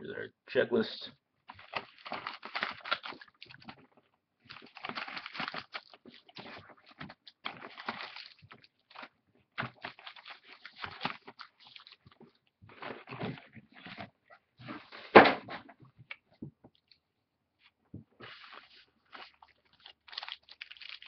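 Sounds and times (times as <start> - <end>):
card pages rustling and sliding: 18.2 - 20.2.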